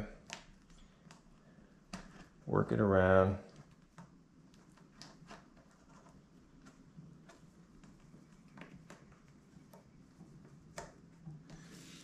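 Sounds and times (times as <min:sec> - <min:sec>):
small ticks and taps: 0:00.2 - 0:01.3.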